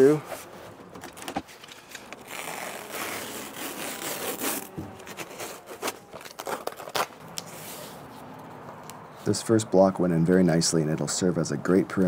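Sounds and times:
fabric tearing off: 2.2s - 7.1s.

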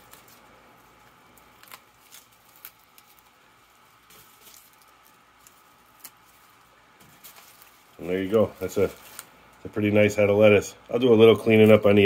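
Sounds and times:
lettuce leaves snapping and rustling: 0.0s - 9.4s.

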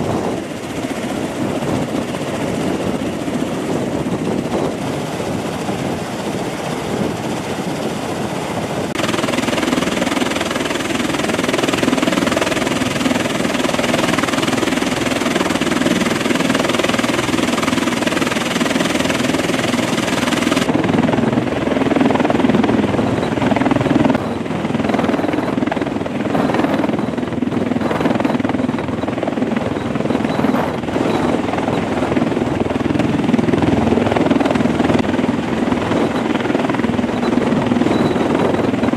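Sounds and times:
aircraft engines droning: 0.0s - 38.9s.

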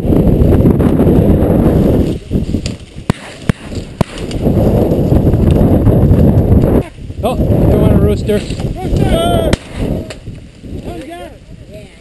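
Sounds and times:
camera carried through stubble: 0.0s - 12.0s
shotgun shots: 3.0s - 4.4s.

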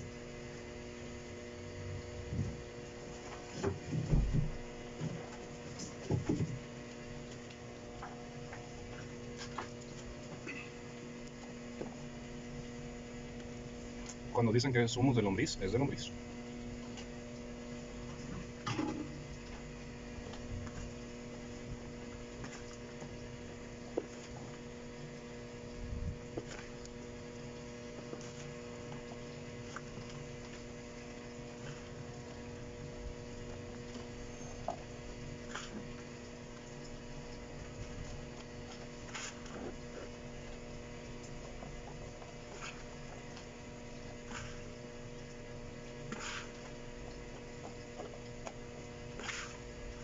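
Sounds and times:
electrical hum: 0.0s - 50.0s
soil scooped by hand: 38.8s - 40.1s, 42.4s - 43.1s, 44.2s - 44.8s, 46.0s - 46.8s, 49.1s - 50.0s.

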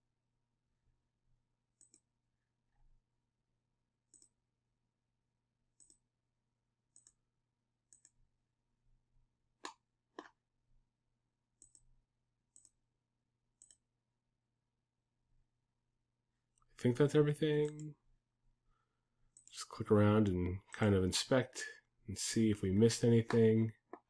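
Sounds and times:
computer mouse clicking: 1.7s - 2.1s, 4.1s - 4.4s, 5.7s - 6.1s, 6.9s - 7.2s, 7.9s - 8.2s, 9.6s - 10.4s, 11.6s - 11.9s, 12.5s - 12.8s, 13.6s - 13.8s, 17.6s - 17.9s.

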